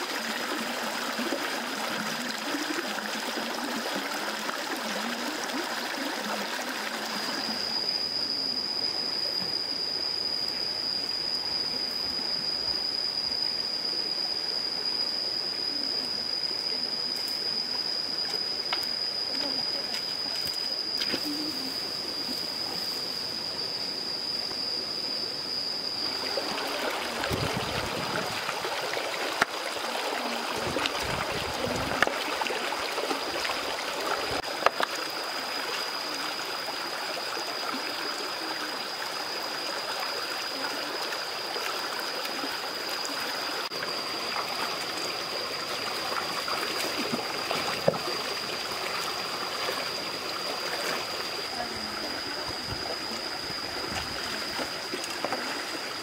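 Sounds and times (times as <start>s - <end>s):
stream running over stones: 0.0s - 8.0s, 26.0s - 56.0s.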